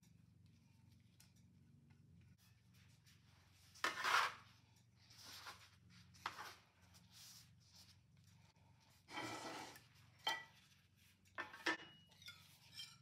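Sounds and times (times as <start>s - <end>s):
metal scraper on wooden board: 3.8s - 4.4s.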